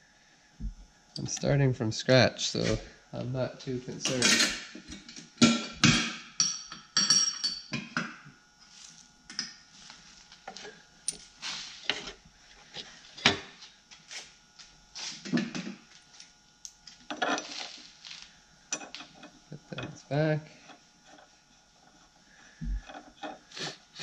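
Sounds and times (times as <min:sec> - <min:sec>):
metal clinks and scrapes: 0:04.1 - 0:04.7, 0:17.1 - 0:21.3.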